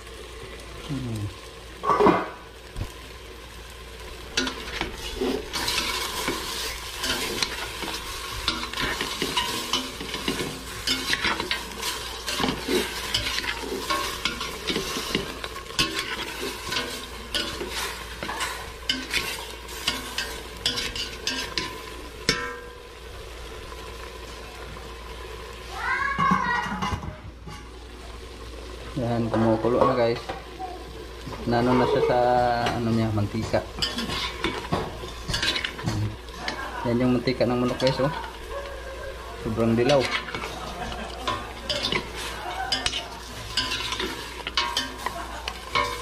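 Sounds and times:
chicken sizzling in a pot: 0.0 - 46.0
utensil scraping a pot: 4.3 - 22.6, 33.4 - 36.7, 39.5 - 46.0.

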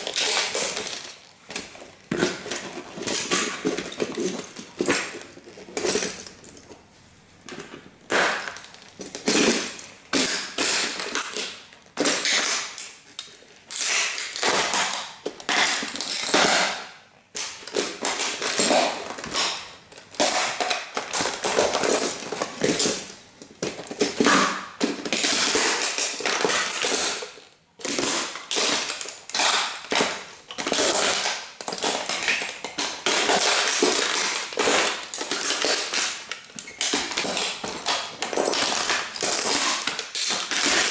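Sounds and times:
toy car cracking and creaking: 17.4 - 23.2, 23.8 - 40.9.

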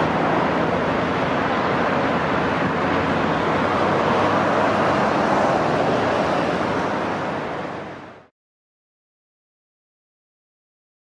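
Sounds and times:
steady rushing noise: 0.0 - 8.3.

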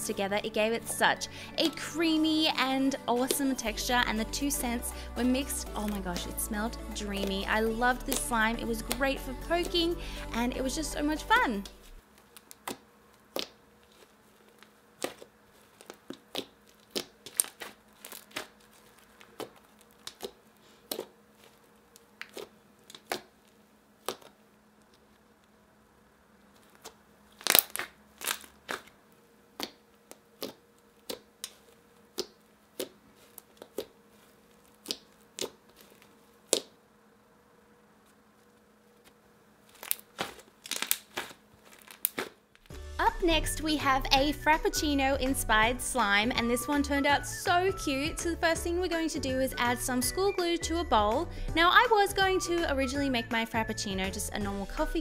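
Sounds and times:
slime clicking and popping: 27.4 - 28.8.

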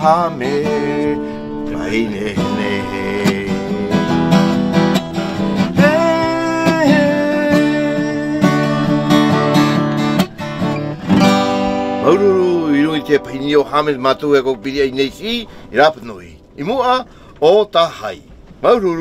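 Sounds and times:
man singing: 0.0 - 4.8, 5.4 - 9.6, 11.9 - 16.1
acoustic guitar strumming: 0.0 - 19.0.

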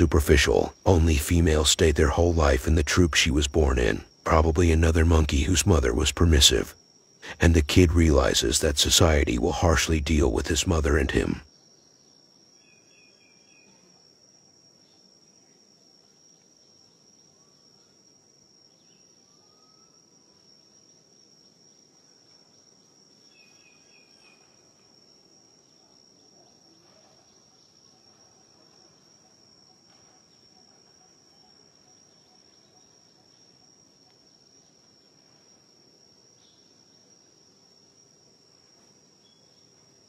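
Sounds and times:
faint chirps: 18.8 - 20.0, 39.2 - 39.8.

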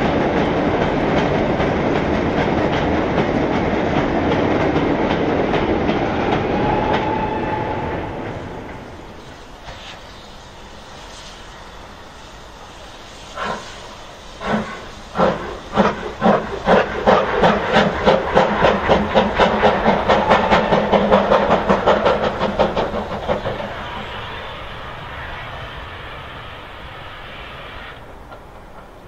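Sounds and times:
steam locomotive exhaust beats: 0.0 - 29.0
steam hissing: 5.8 - 29.0.

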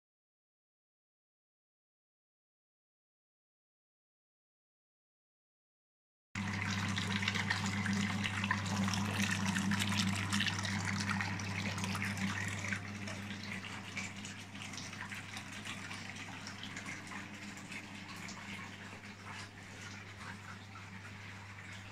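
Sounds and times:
low electric hum: 6.4 - 21.9
water gushing and bubbling: 6.4 - 21.9.

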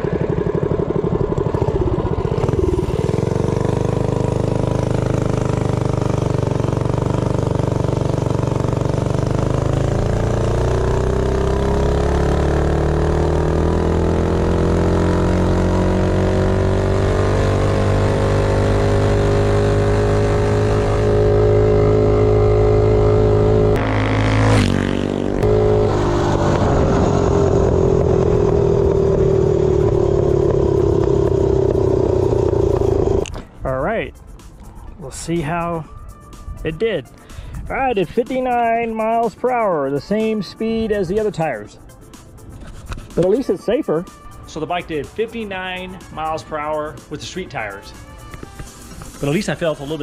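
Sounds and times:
minibike engine accelerating: 0.0 - 33.9.

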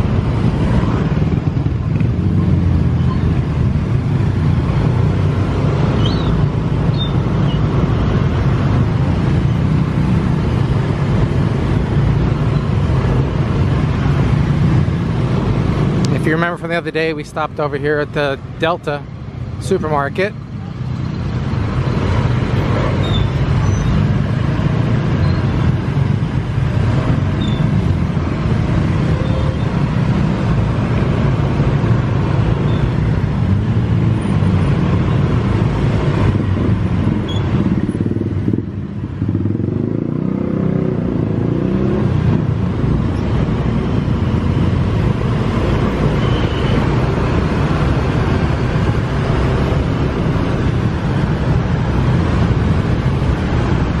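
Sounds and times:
other scooter engines: 0.0 - 54.0
road noise: 0.0 - 54.0.

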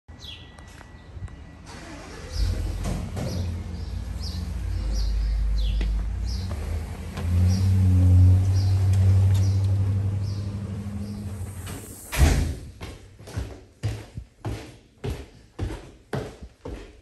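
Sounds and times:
vehicle engine rumbling: 0.6 - 12.8.

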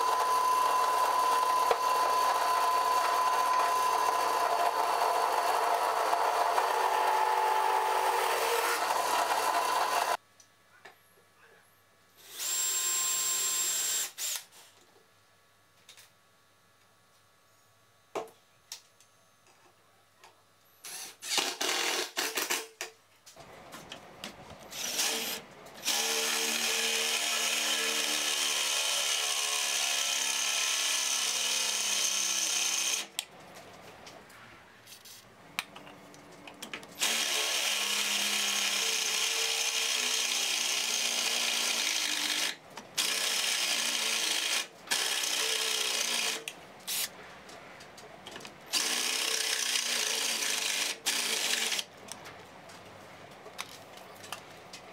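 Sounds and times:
cordless drill boring through steel: 0.0 - 10.2, 12.2 - 14.4, 24.7 - 33.1, 37.0 - 46.5, 48.7 - 51.8.

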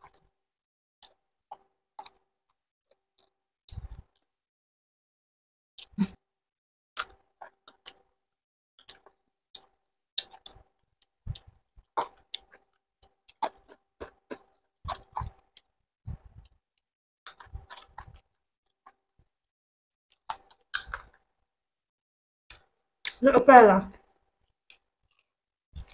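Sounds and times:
person chewing and lip smacking: 1.0 - 2.2, 7.0 - 8.1, 8.8 - 10.7, 11.3 - 16.6, 17.3 - 18.3, 20.1 - 21.3, 24.7 - 25.9.

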